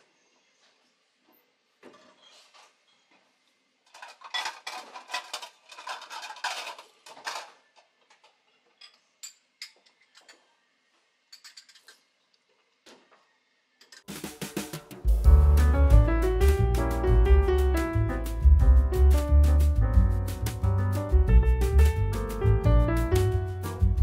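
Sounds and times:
piano music: 0:15.0 - 0:24.0.

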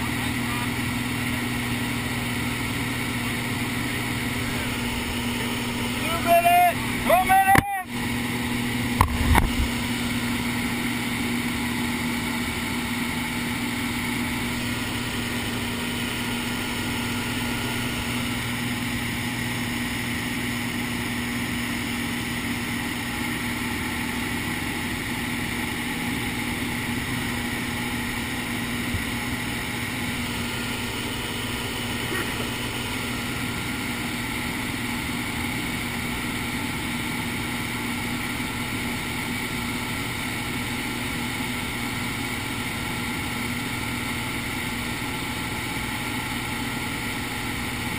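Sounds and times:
light aircraft engine droning: 0:00.0 - 0:19.6.

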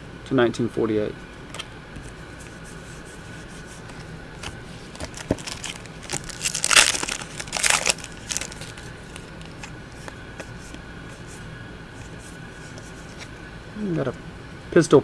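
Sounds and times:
trading cards shuffling and crinkling: 0:02.0 - 0:11.4.

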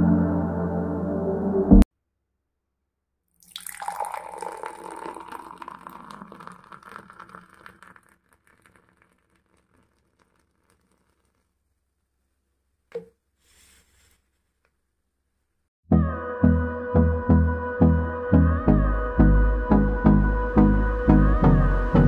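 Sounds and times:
fizzy drink poured into glass: 0:03.4 - 0:11.4.

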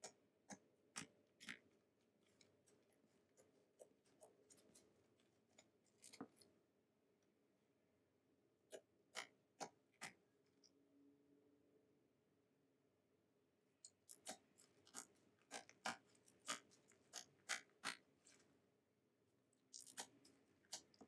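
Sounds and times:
fingers poking slime: 0:08.7 - 0:10.3, 0:13.9 - 0:18.1, 0:19.7 - 0:21.0.

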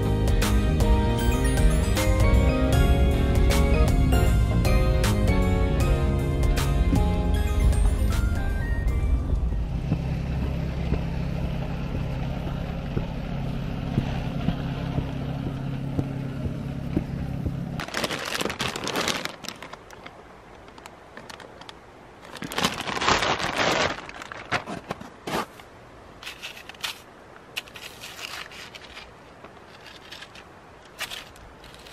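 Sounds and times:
engine running: 0:00.0 - 0:18.8
plastic bag crinkling: 0:17.8 - 0:25.0.

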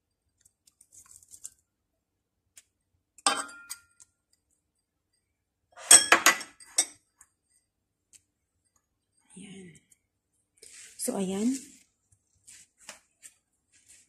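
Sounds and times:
kitchenware clinking against a pan: 0:03.3 - 0:03.9, 0:05.8 - 0:07.0.

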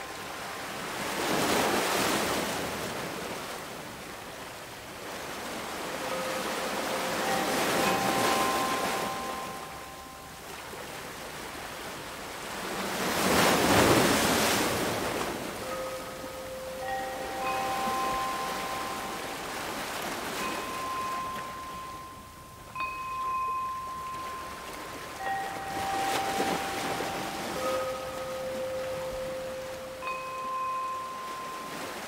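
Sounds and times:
ocean waves washing in: 0:00.0 - 0:32.0
soft chime tones: 0:05.5 - 0:11.0, 0:14.7 - 0:32.0.

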